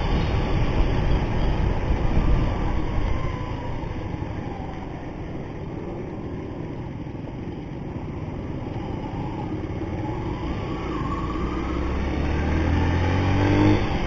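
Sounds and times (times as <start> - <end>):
motorcycle engine running: 0.0 - 12.0
road and wind noise: 0.0 - 14.0.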